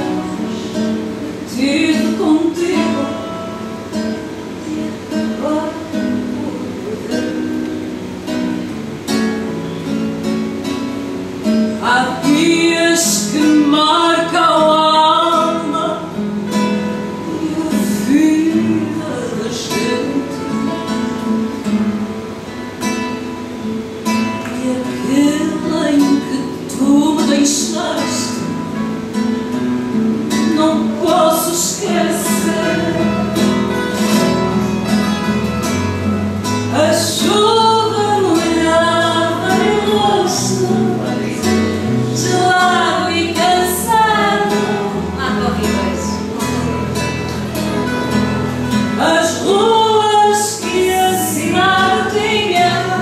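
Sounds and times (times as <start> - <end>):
woman singing: 0.0 - 7.8, 11.5 - 16.2, 17.0 - 21.6, 24.4 - 28.8, 30.2 - 34.3, 36.6 - 47.2, 48.9 - 53.0
guitars plucking accompaniment: 0.0 - 53.0.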